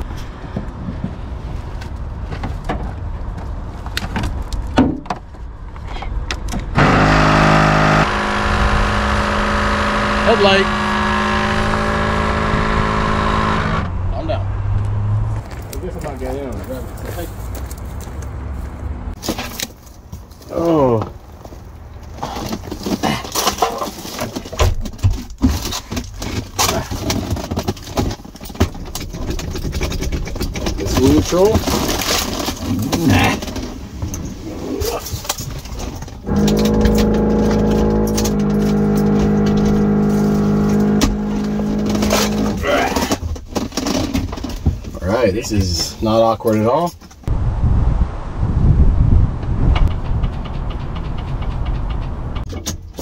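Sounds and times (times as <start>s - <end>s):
hands handling car parts: 0.0s - 6.7s, 15.4s - 47.2s
clamps and cables rattling: 22.2s - 34.2s, 35.0s - 45.0s
pitched whirring hum: 36.2s - 43.2s.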